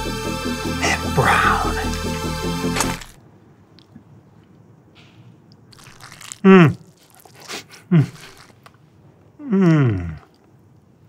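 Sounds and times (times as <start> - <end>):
man moaning: 0.8 - 2.2, 6.4 - 6.8, 9.4 - 10.3
man chewing steak: 5.5 - 8.8.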